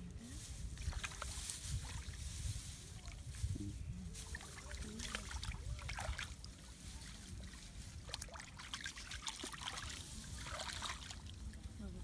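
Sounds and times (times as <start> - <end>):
water splashing and trickling: 0.0 - 12.0.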